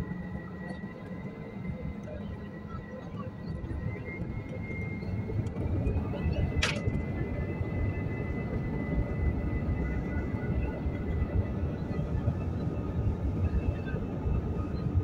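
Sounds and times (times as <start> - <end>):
jet engines rumbling and whining: 0.0 - 15.0
brief click: 6.6 - 7.0.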